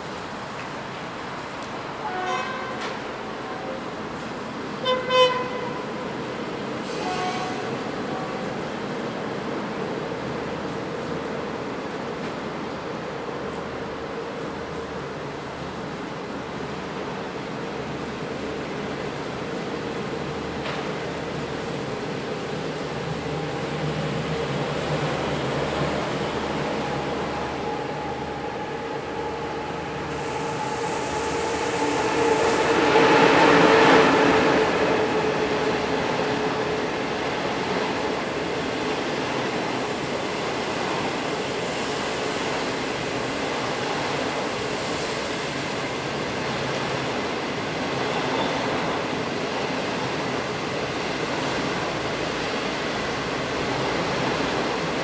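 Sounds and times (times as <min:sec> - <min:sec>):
train coaches rumbling on rails: 0:00.0 - 0:55.0
electric locomotive whine: 0:01.0 - 0:55.0.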